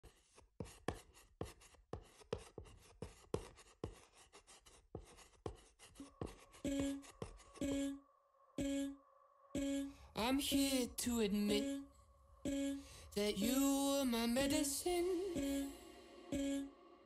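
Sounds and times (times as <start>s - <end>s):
writing clicks and taps: 0.0s - 7.9s
soft held music tones: 9.6s - 17.0s.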